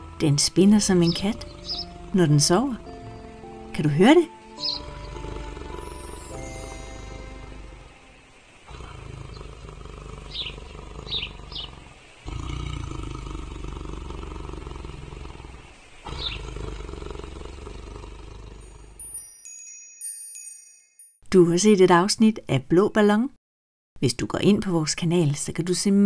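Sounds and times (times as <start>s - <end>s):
tiger purring: 0.8s - 6.0s, 8.6s - 19.0s.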